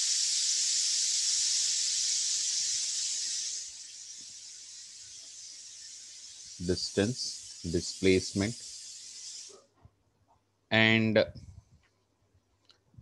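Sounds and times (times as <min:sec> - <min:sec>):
high recording hiss: 0:00.0 - 0:10.0.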